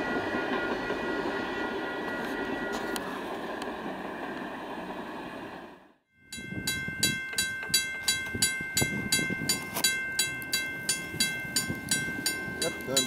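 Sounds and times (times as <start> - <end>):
crossing bell ringing rapidly: 0.0 - 3.2, 6.1 - 13.0
distant train rumble: 0.0 - 13.0.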